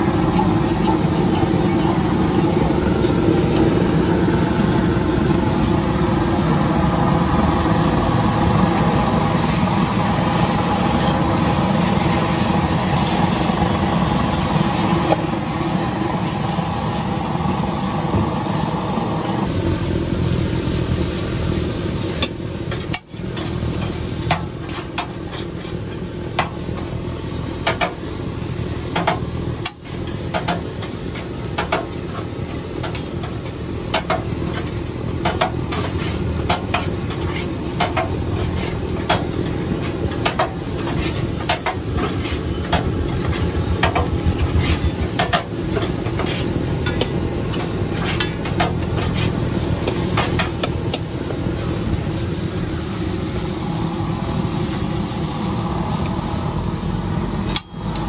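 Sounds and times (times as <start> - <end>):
food sizzling: 19.4 - 58.0
metal spatula scraping griddle: 33.9 - 50.6.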